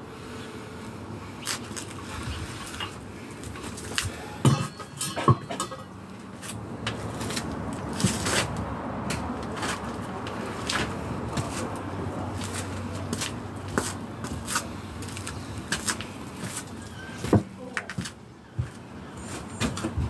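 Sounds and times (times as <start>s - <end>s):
tools clattering: 4.4s - 6.6s.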